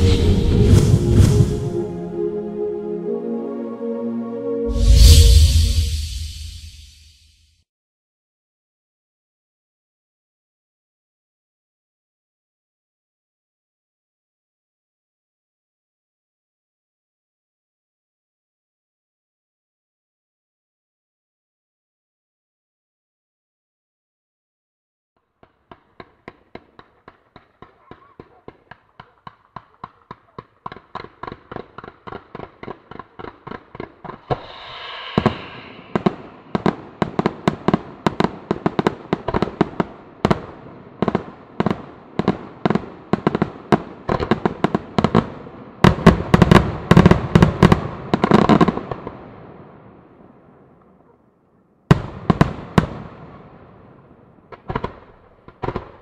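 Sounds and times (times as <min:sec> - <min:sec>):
firework bangs: 0:00.0 - 0:01.9, 0:25.7 - 0:40.5.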